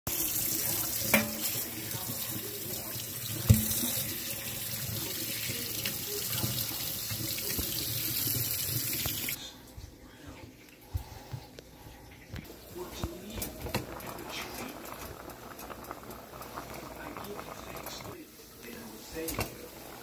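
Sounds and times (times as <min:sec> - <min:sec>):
faucet water splashing into sink: 0:00.1 - 0:09.4.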